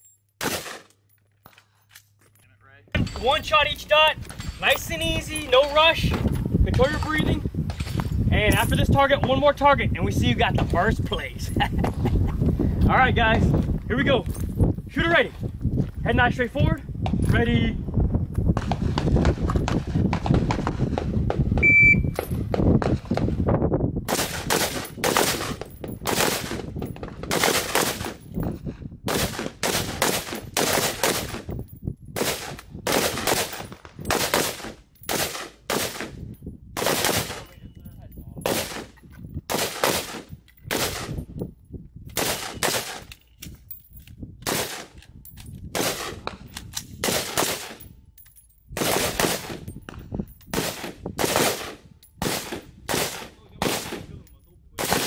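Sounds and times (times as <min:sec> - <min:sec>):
rifle single shots: 0:00.4 - 0:00.9, 0:27.2 - 0:28.2, 0:29.1 - 0:31.5, 0:32.2 - 0:36.2, 0:36.8 - 0:37.5, 0:38.4 - 0:38.9, 0:39.5 - 0:41.2, 0:42.2 - 0:43.1, 0:45.7 - 0:46.3, 0:47.0 - 0:47.8, 0:50.5 - 0:54.1, 0:54.8 - 0:55.0.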